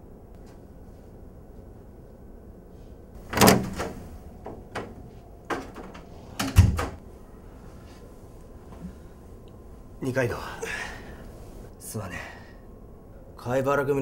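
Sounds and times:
door closing thump: 3.2s - 7.0s
door handle and latch clicks: 3.2s - 7.0s.

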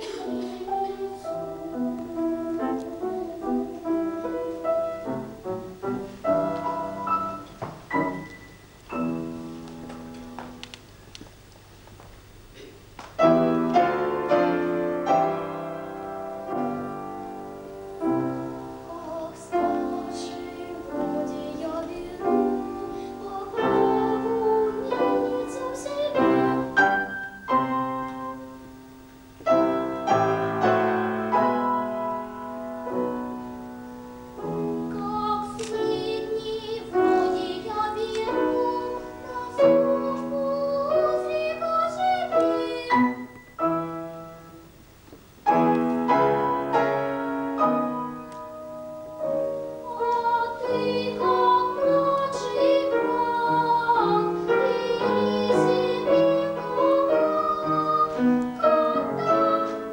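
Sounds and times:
child singing opera: 0.0s - 4.7s, 18.1s - 27.1s, 29.5s - 32.3s, 34.5s - 43.4s, 49.6s - 59.9s
piano accompaniment: 0.0s - 11.8s, 12.6s - 59.9s.

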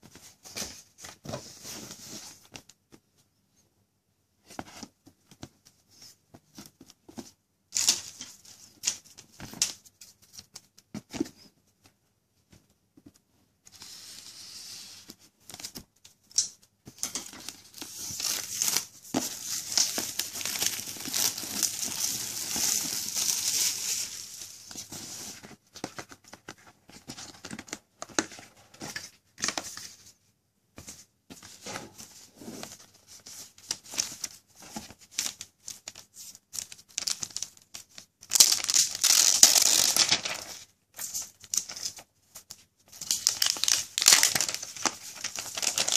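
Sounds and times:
plastic shrink-wrap tearing: 38.3s - 40.5s, 43.2s - 45.9s.

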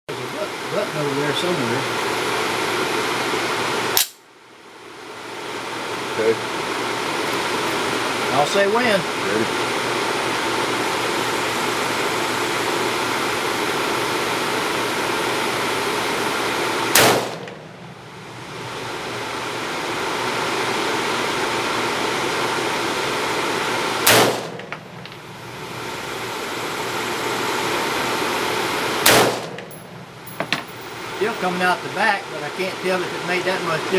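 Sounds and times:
steady background hiss: 0.1s - 33.9s
rifle shots: 16.9s - 17.6s, 24.0s - 24.8s, 29.0s - 29.8s.

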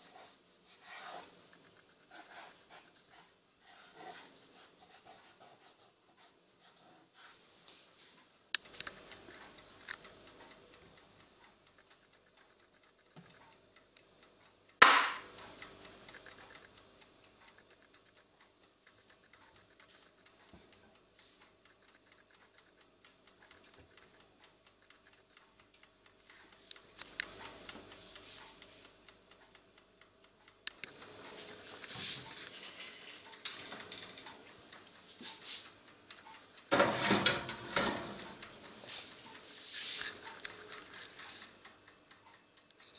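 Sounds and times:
mechanical timer ticking: 0.0s - 7.3s, 8.0s - 42.9s
oven low hum: 8.6s - 12.6s, 13.2s - 42.9s
pan rattling on wire rack: 36.7s - 38.2s.

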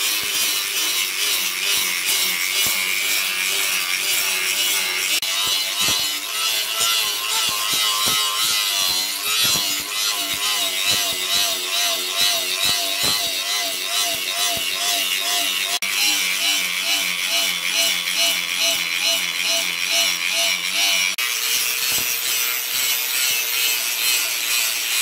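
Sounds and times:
angle grinder grinding steel: 0.0s - 25.0s.

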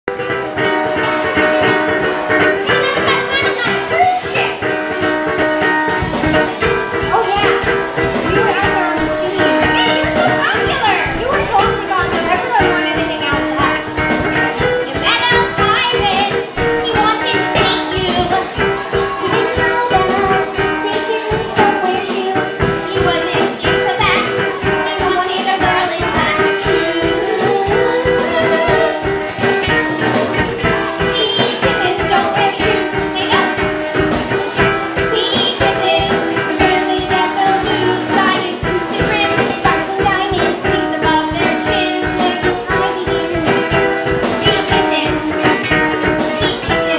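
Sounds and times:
drum kit: 0.1s - 46.9s
women singing: 14.9s - 34.1s, 35.0s - 46.9s.

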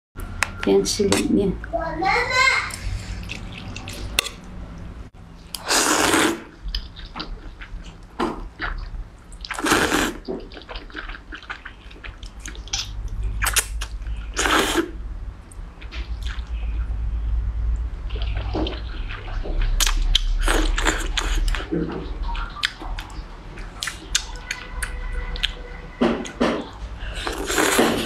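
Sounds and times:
wet chewing clicks: 3.1s - 4.9s, 6.7s - 14.8s, 18.1s - 25.6s
noodles slurped from a bowl: 5.6s - 7.7s, 9.5s - 11.7s, 12.8s - 15.0s, 27.2s - 28.0s.

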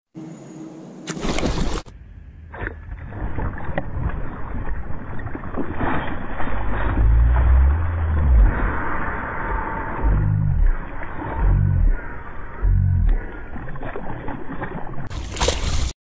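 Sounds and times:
wind rumbling on microphone: 1.6s - 13.7s
fish splashing in water: 2.6s - 15.9s.

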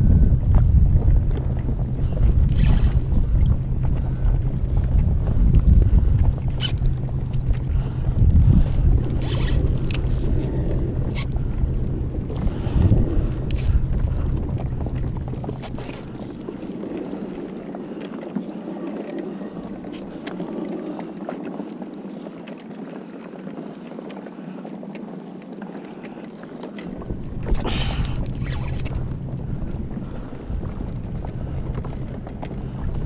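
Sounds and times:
water lapping against hull: 0.0s - 33.0s
wind rumbling on microphone: 0.0s - 33.0s
kayak clicks and knocks: 13.3s - 33.0s.

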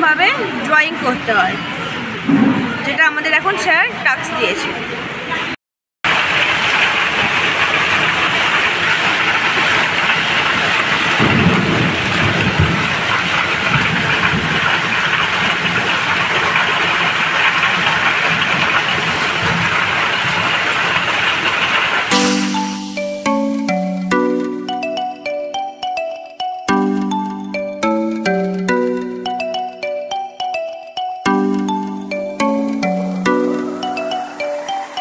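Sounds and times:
heavy rain and hail pelting: 6.1s - 22.1s.

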